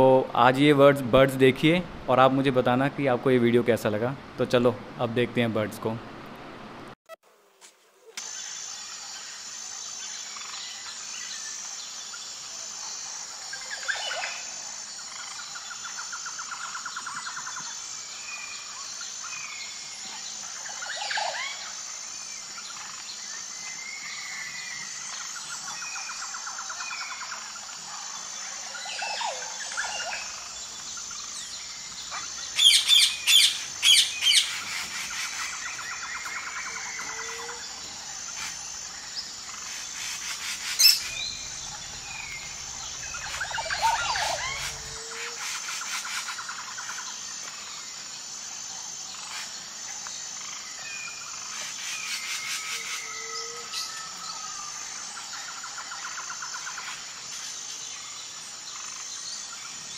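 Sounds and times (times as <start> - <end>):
birds chirping and trilling: 8.2 - 48.1
loud sharp bird chirps: 32.1 - 37.6, 39.5 - 46.4
high-pitched pulsing trill: 40.4 - 45.4.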